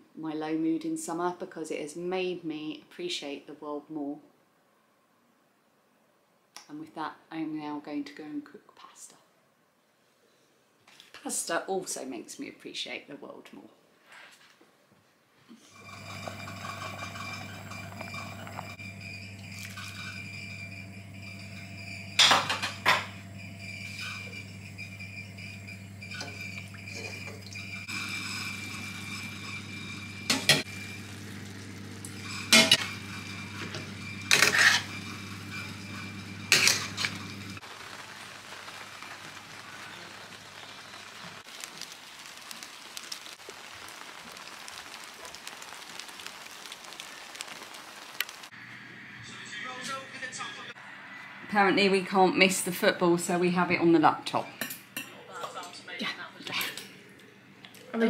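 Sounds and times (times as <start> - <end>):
kitchen hum: 15.5 - 58.0
water boiling in pot: 15.6 - 49.4
stirring in a pan: 26.1 - 48.5.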